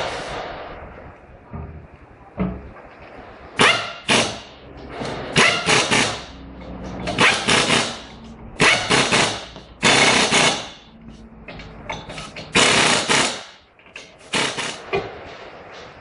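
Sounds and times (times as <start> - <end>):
pneumatic impact wrench rattling: 3.6 - 14.8.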